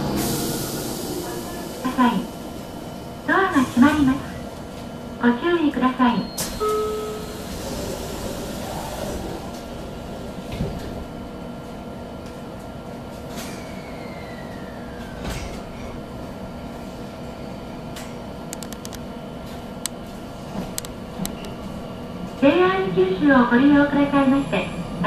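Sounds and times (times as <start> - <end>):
train pulling away: 0.0 - 4.9, 13.2 - 17.5.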